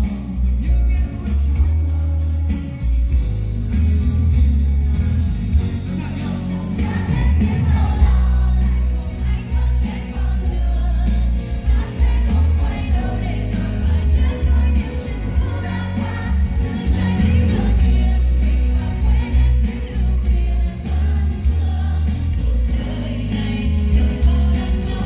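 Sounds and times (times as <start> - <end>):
booming bass: 0.0 - 25.0
singers over a band: 5.5 - 25.0.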